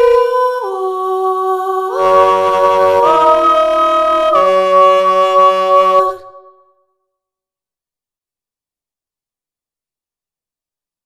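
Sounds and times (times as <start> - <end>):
sampled female voice singing: 0.0 - 6.4.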